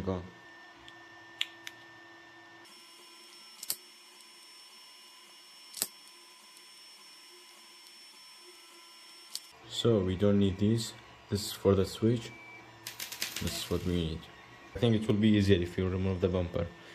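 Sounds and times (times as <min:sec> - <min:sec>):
printer humming: 0:00.0 - 0:16.9
sharp clicks: 0:12.8 - 0:13.8.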